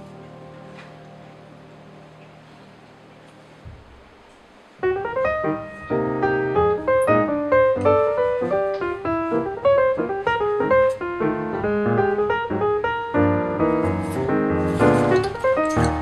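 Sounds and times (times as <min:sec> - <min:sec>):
piano music: 0:00.0 - 0:03.6, 0:04.8 - 0:16.0.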